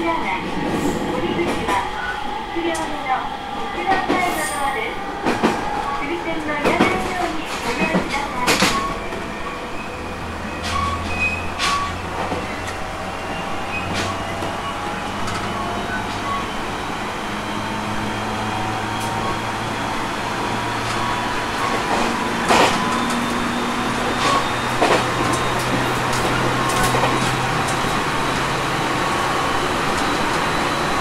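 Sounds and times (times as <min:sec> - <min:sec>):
wheels clacking at rail joints: 0:03.8 - 0:19.6, 0:20.3 - 0:31.0.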